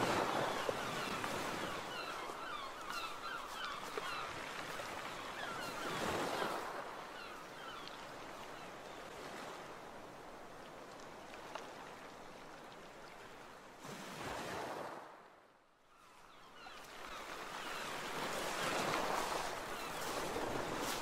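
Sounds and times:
ocean waves washing: 0:00.0 - 0:10.9, 0:17.4 - 0:21.0.

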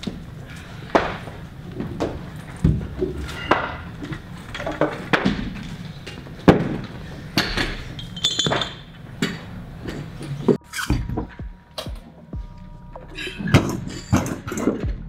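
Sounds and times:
weight plates clanking: 0:13.1 - 0:15.0.

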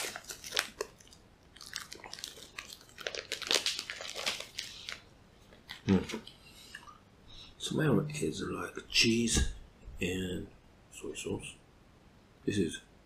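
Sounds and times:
plastic wrapper crinkling and tearing: 0:00.0 - 0:06.4.

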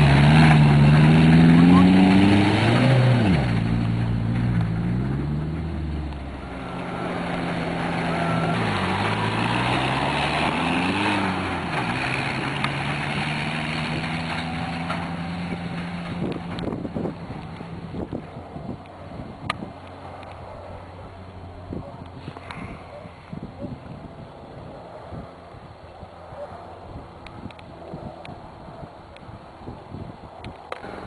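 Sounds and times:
utility vehicle engine running: 0:00.0 - 0:23.0
tyres on dirt: 0:00.0 - 0:28.4, 0:30.2 - 0:31.0.

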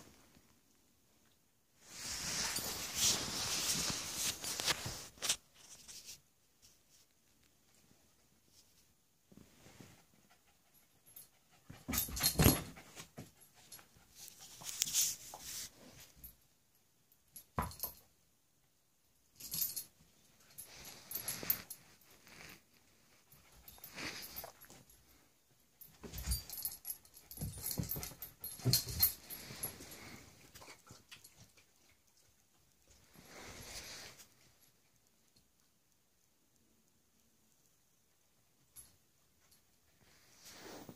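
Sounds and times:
dogs playing noises: 0:09.7 - 0:16.2, 0:20.5 - 0:25.2, 0:25.8 - 0:34.7.

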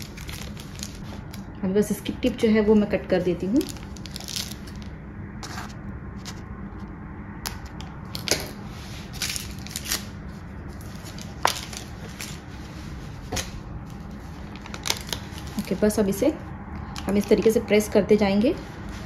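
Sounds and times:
plastic bag crinkling: 0:00.0 - 0:01.6, 0:03.4 - 0:05.0, 0:09.0 - 0:12.6, 0:14.0 - 0:15.8
steady low hum: 0:00.0 - 0:19.0.

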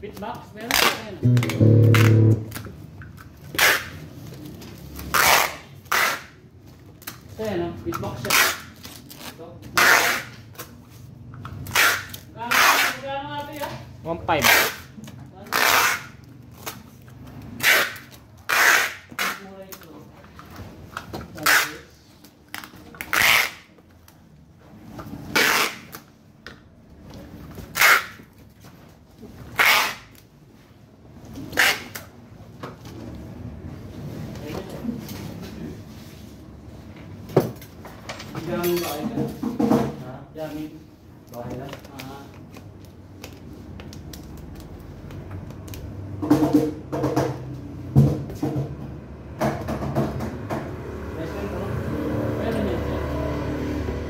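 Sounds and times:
packing tape ripping off tape gun: 0:05.0 - 0:06.4, 0:08.2 - 0:10.7, 0:11.7 - 0:13.0, 0:15.5 - 0:16.8, 0:17.6 - 0:19.4, 0:25.3 - 0:26.1, 0:27.7 - 0:28.3, 0:29.5 - 0:30.2
marker pen squeaking on plastic: 0:31.5 - 0:32.1.

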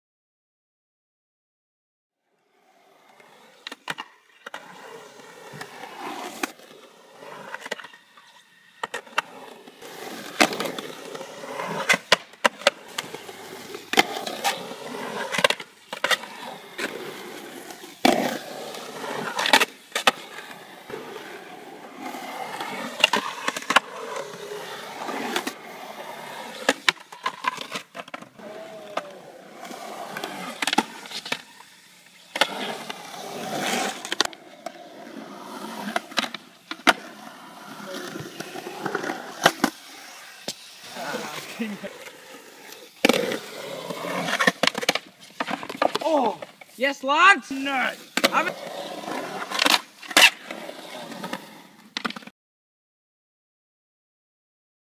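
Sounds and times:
skateboard wheels rolling on concrete: 0:02.2 - 0:52.3
skateboard clacking on concrete: 0:48.0 - 0:50.4.

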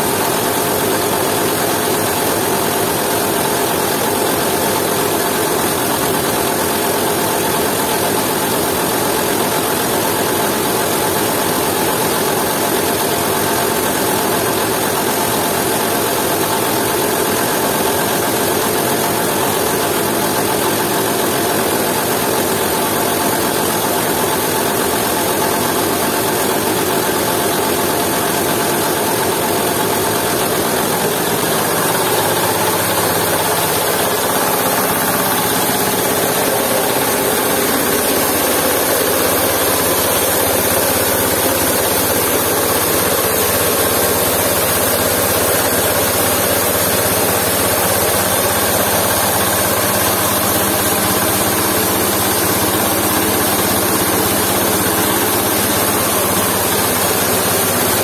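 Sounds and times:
diesel engine running: 0:29.1 - 0:58.0.

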